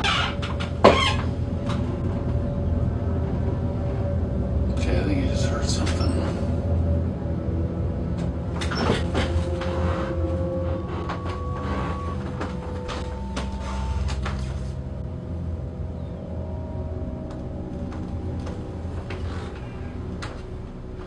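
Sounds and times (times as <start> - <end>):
steady low hum: 0.0 - 21.0
long held tones: 5.9 - 21.0
office chair creaking: 8.2 - 14.9, 17.7 - 21.0
footsteps on wooden floor: 8.6 - 14.9.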